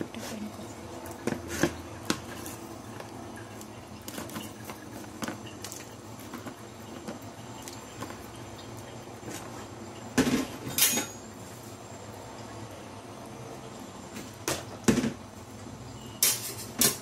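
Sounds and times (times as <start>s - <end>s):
sharp kitchen knocks: 14.4s - 15.2s.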